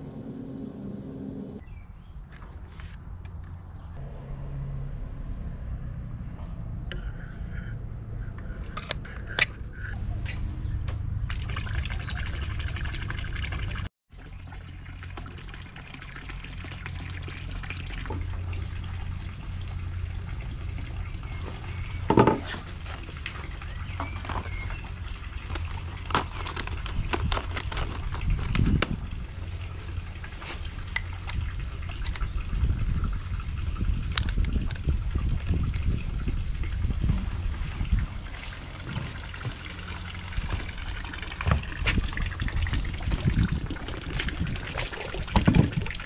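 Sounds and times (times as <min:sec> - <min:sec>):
low rumble: 0:00.0 - 0:01.7.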